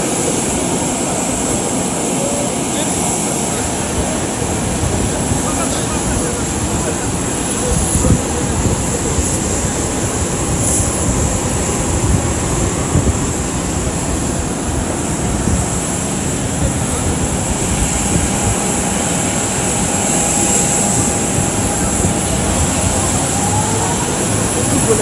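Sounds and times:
jet aircraft whine and rumble: 0.0s - 25.0s
wind buffeting microphone: 0.0s - 25.0s.

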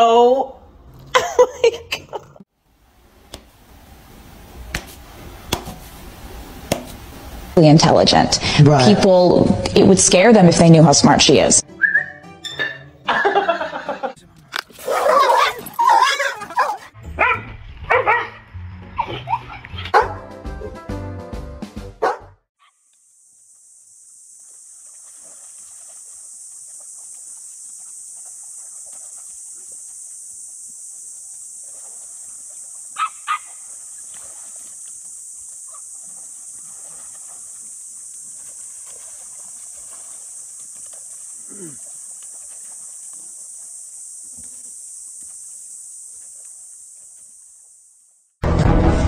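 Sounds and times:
dog barking: 14.9s - 18.4s, 19.0s - 20.2s, 22.0s - 22.8s, 33.0s - 33.6s
high-pitched hiss: 22.6s - 48.0s.

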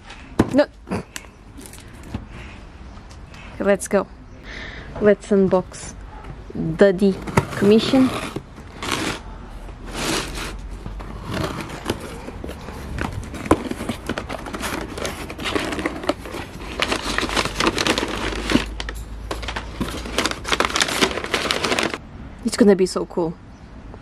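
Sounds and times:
packing paper crinkling: 7.2s - 22.0s.

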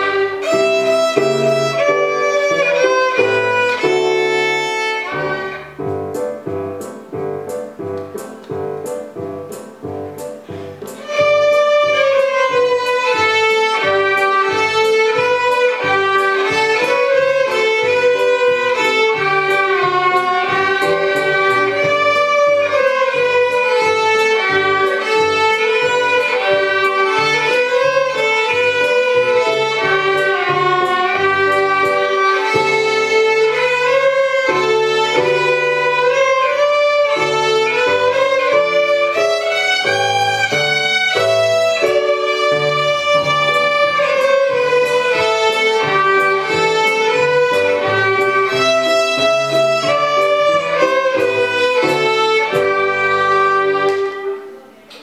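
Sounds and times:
violins playing a carol: 0.0s - 6.3s, 10.5s - 54.8s.

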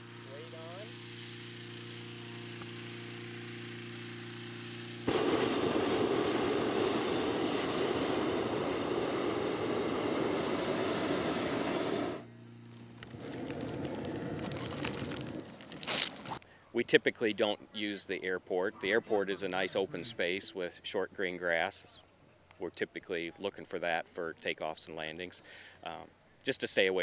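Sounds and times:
propane burner blast: 0.0s - 16.4s
small gasoline engine running: 0.0s - 16.4s.

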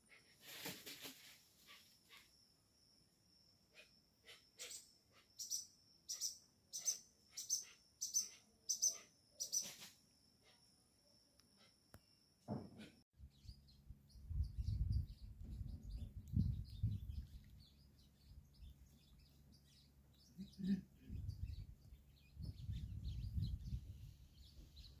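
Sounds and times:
small birds chirping: 0.0s - 25.0s
low rumble on microphone: 13.2s - 19.0s, 20.6s - 25.0s.

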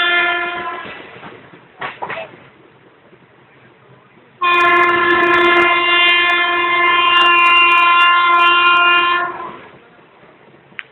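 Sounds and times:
train horn blast: 0.0s - 1.0s, 4.4s - 9.7s.

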